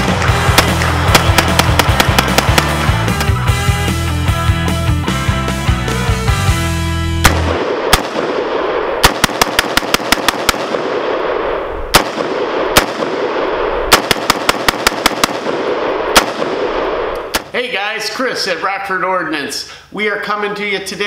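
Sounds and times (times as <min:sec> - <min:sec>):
pistol gunshots: 0:00.4 - 0:03.4, 0:07.2 - 0:17.5.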